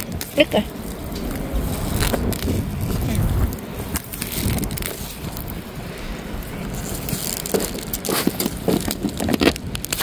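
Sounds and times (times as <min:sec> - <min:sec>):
leaves rustling: 0:00.0 - 0:10.0
soil crackling: 0:00.0 - 0:10.0
wind buffeting microphone: 0:00.0 - 0:10.0.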